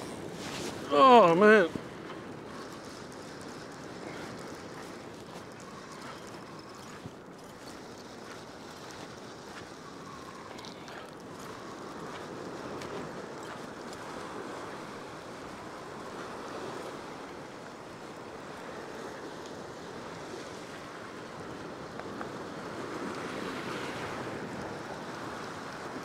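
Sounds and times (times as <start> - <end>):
surf breaking on rocks: 0.0 - 6.9.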